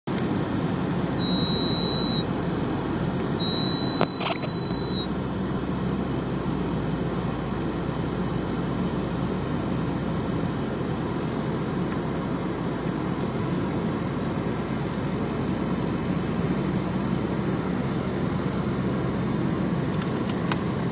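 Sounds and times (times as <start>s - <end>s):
car road and engine noise: 0.1s - 20.9s
high-pitched whistle: 1.2s - 2.3s, 3.4s - 5.1s.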